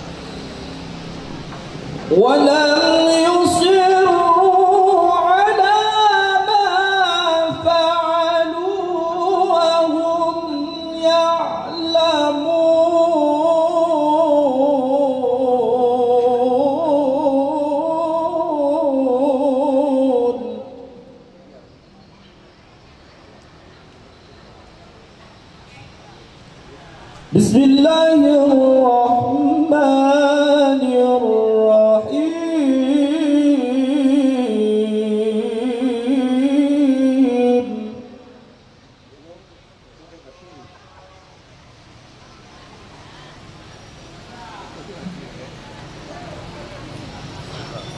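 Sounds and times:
man reciting melodically: 2.1s - 21.6s, 27.3s - 38.6s.

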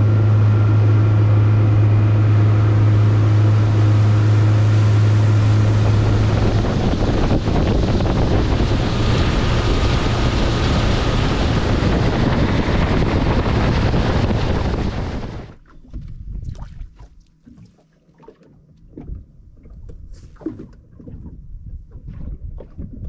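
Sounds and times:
rush of wind and spray: 0.0s - 15.6s
wind buffeting microphone: 0.0s - 17.0s, 18.9s - 23.0s
water lapping: 2.2s - 23.0s.

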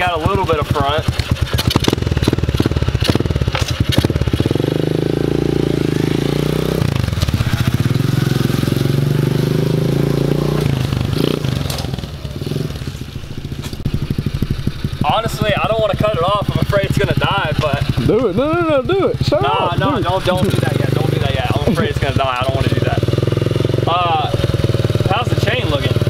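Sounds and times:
small motorbike engine revving: 0.0s - 26.0s.

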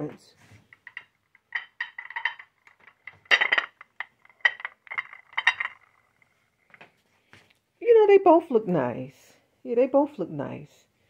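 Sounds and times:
dishes clinking on a table: 0.8s - 5.8s.

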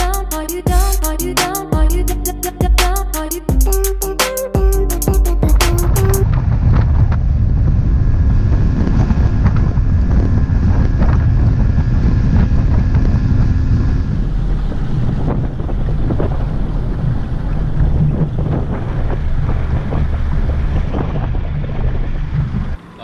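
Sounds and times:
wind buffeting microphone: 5.7s - 22.9s.

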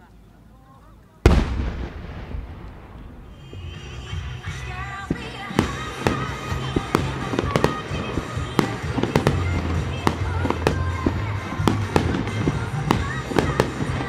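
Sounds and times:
fireworks bursting: 1.2s - 14.0s
music playing: 3.0s - 14.0s.

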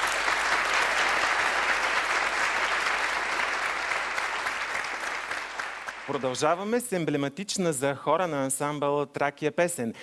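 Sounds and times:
people clapping: 0.0s - 6.8s.

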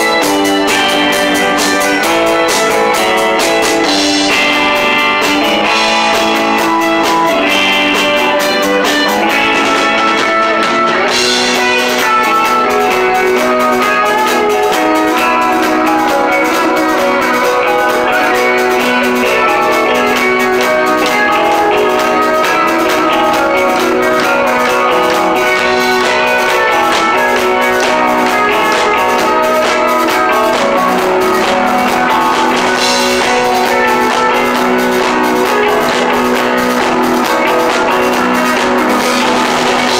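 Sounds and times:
live rock band playing: 0.0s - 39.9s.

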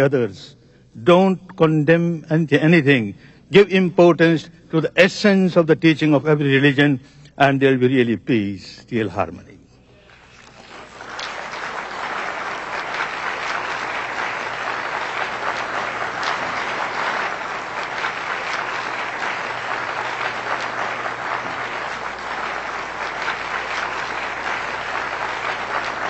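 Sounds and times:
audience applauding: 10.1s - 26.0s.

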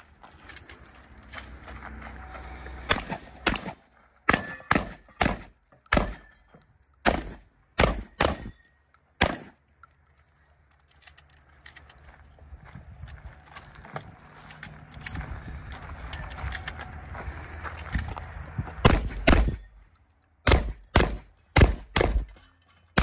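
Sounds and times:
pistol shots: 2.9s - 6.4s, 7.0s - 8.6s, 9.2s - 9.6s, 18.8s - 19.7s, 20.4s - 22.3s.

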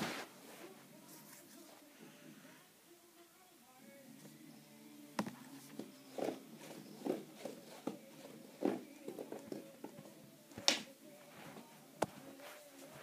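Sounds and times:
ribbon rustling over carpet: 0.0s - 1.9s, 11.1s - 13.0s.

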